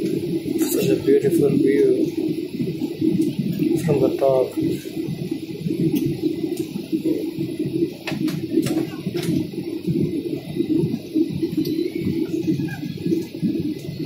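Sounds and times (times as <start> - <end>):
airliner engine rumble: 0.0 - 14.0
faint clicks: 5.9 - 6.8.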